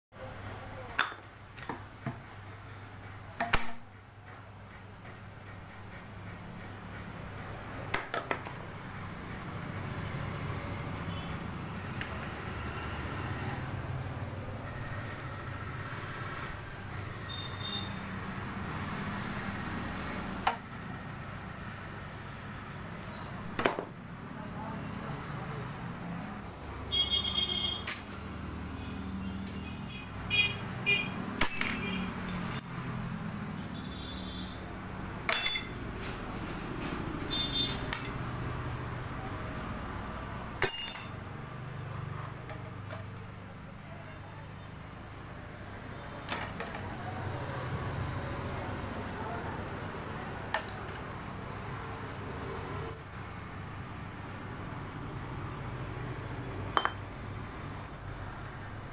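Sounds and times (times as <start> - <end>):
metal tools clinking: 29.4 - 29.8, 31.4 - 33.0, 35.3 - 35.9, 37.9 - 38.3, 40.6 - 41.3.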